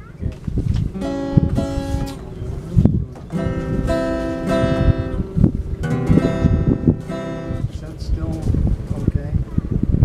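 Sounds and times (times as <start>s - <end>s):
acoustic guitar strumming: 0.9s - 8.0s.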